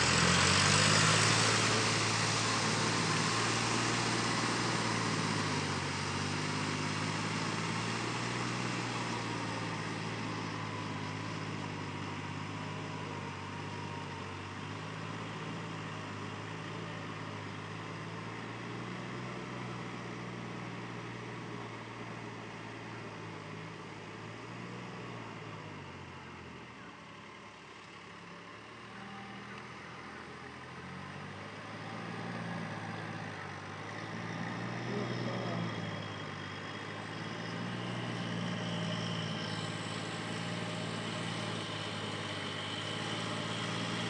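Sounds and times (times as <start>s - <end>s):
tractor diesel engine running: 0.0s - 44.0s.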